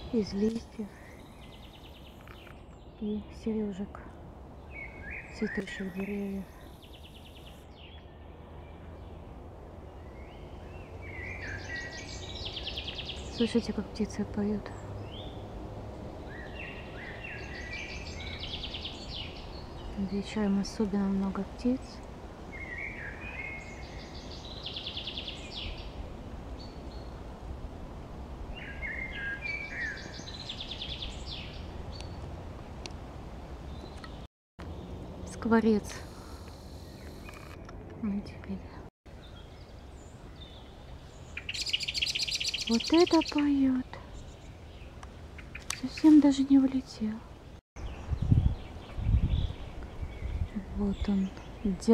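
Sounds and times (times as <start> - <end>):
songbird whistling and trilling: 41.4 - 43.4.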